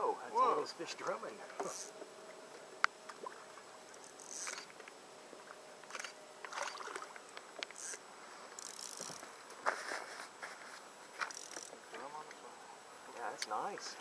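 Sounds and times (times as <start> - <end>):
fishing reel rasps and clicks: 3.9 - 4.7, 7.6 - 8.0, 8.6 - 9.3, 11.2 - 11.8.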